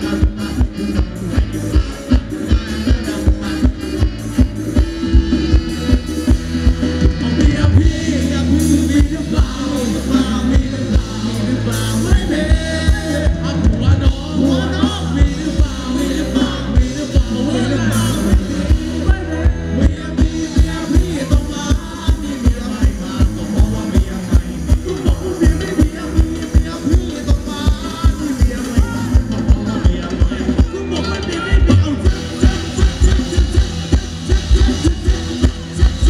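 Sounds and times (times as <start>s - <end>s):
bass drum beat: 0.0s - 36.0s
live band music: 0.0s - 36.0s
person singing: 0.0s - 36.0s.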